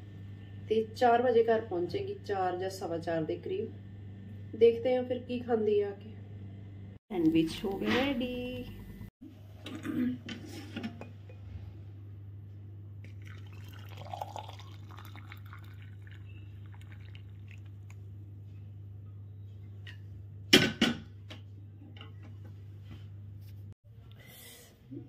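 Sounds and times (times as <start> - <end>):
steady low hum: 0.0 - 25.0
liquid pouring: 13.1 - 18.0.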